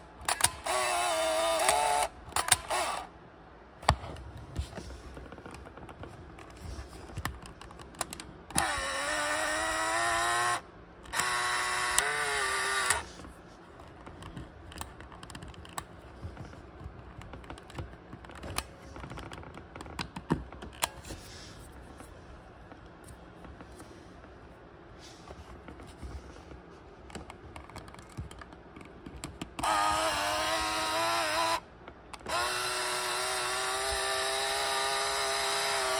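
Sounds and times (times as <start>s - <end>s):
camera motor whirring: 0.2s - 3.1s, 8.5s - 13.2s, 29.6s - 35.9s.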